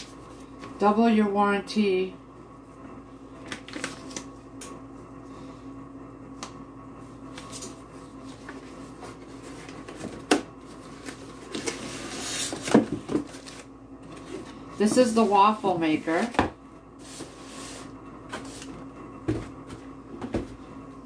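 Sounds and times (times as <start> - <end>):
faint steady hum: 0.0 - 21.0
paper and cardboard rustling: 8.3 - 16.4.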